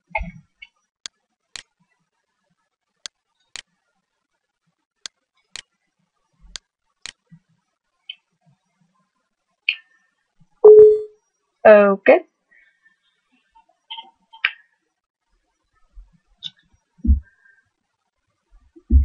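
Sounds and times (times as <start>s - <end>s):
mouse button clicking: 10.7s - 11.1s.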